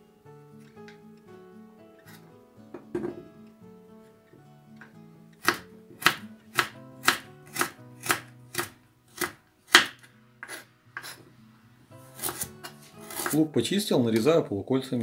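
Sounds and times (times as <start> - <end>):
soft background music: 0.0 - 15.0
knife chopping on wooden board: 5.4 - 11.2, 12.2 - 13.4.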